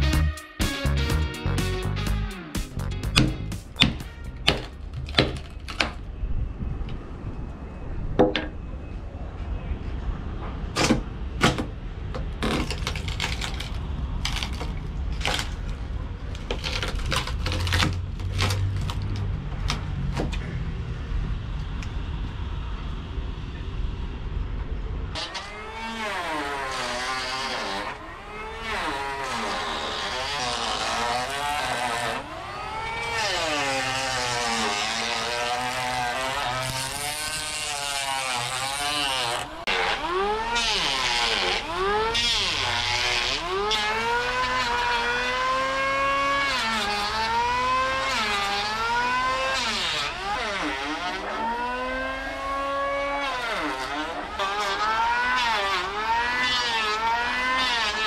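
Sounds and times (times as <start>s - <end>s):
electric planer cutting wood: 25.2s - 58.0s.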